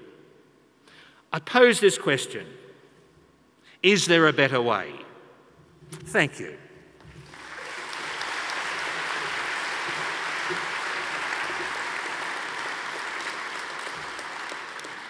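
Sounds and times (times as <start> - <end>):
audience clapping: 7.1 - 15.0.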